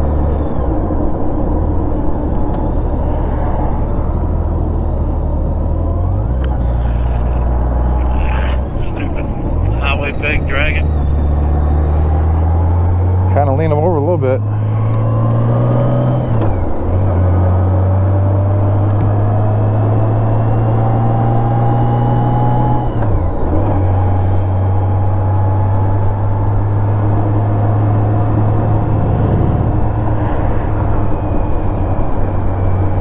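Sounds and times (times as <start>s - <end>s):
motorcycle engine revving: 10.4s - 32.8s
wind rush: 28.0s - 32.5s.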